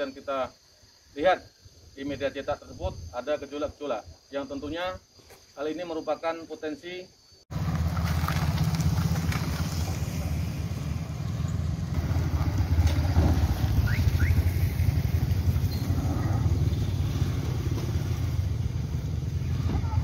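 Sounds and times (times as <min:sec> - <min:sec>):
car engine rumble: 0:07.5 - 0:20.0
motorcycle riding past: 0:07.5 - 0:20.0.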